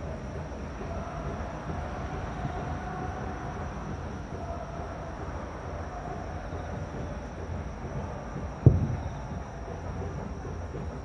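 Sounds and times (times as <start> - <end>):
low background rumble: 0.0 - 11.0
distant firework bang: 8.6 - 9.4.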